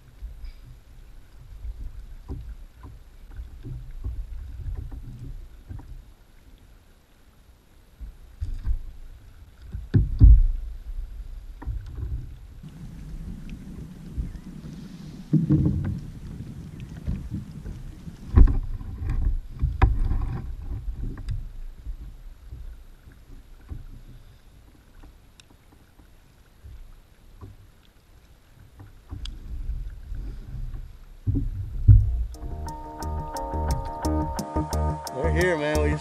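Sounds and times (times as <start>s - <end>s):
water lapping at kayak: 0.0s - 33.0s
wind rumbling on microphone: 8.0s - 24.1s.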